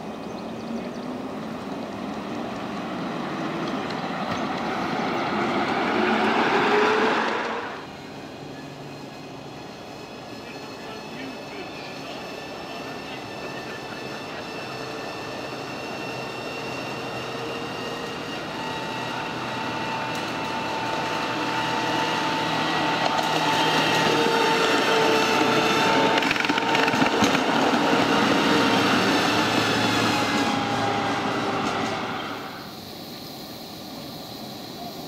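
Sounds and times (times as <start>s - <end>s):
miniature train whine: 0.0s - 35.0s
wheels clicking over rail joints: 26.1s - 27.9s.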